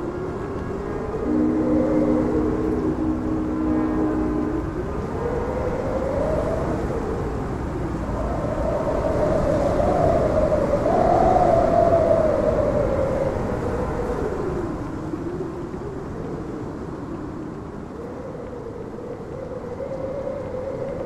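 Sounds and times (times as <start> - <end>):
steamship whistle: 0.8 - 5.8
low rumble: 1.2 - 5.2.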